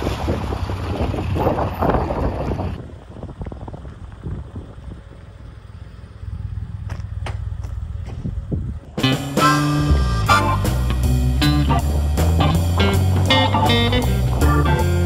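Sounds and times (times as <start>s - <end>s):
wind buffeting microphone: 0.0s - 9.1s
low vehicle engine rumble: 0.0s - 15.0s.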